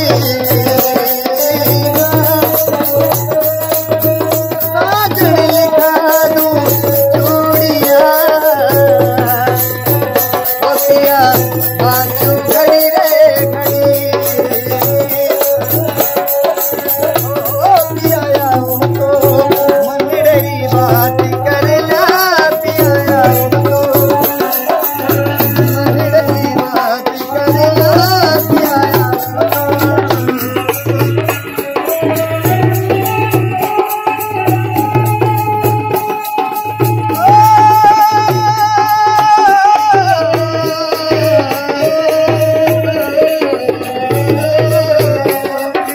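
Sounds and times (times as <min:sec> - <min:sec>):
bells jingling: 0:00.0 - 0:45.9
drum steady beat: 0:00.0 - 0:45.9
man singing: 0:00.0 - 0:45.9.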